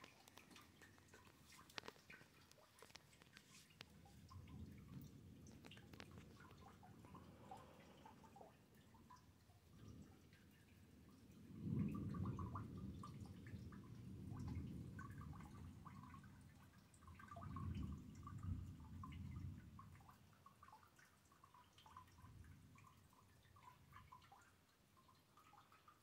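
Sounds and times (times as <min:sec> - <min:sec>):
rain dripping: 0:00.0 - 0:26.0
low thunder rumbling: 0:10.8 - 0:16.2.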